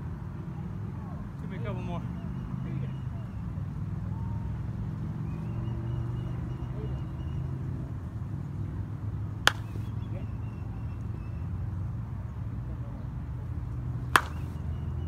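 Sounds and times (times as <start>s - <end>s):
low rumble of wind: 0.0s - 15.0s
bat cracking against ball: 9.4s - 10.0s, 14.0s - 14.6s.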